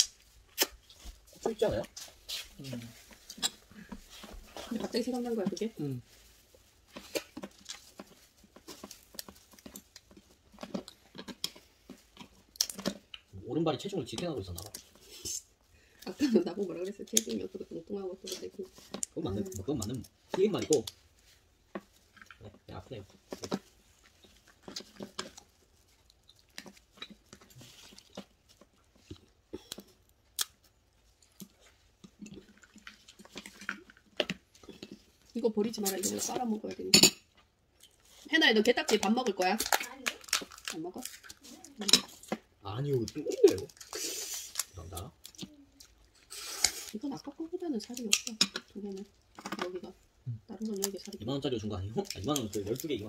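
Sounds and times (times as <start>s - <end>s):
chewing: 0.0s - 13.4s, 14.2s - 35.4s, 37.2s - 38.3s, 38.9s - 51.2s
crab shells cracking: 7.0s - 13.3s, 19.9s - 21.1s, 21.7s - 35.2s, 38.9s - 47.0s, 47.8s - 51.2s, 52.0s - 53.0s
crab shell cracking: 38.9s - 46.9s.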